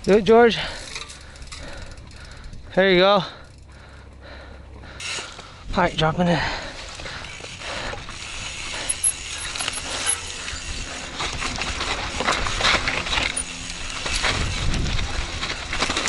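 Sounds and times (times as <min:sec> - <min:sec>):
bike rattling and clicking: 0:00.0 - 0:16.0
tyres rolling over dirt and rock: 0:06.7 - 0:16.0.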